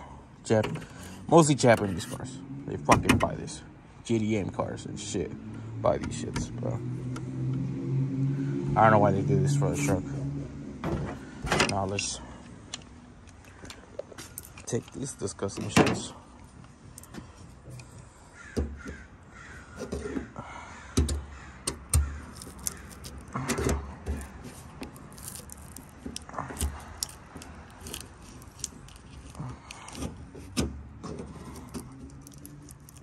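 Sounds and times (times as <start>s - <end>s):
harsh scraping and creaking: 22.1s - 33.0s.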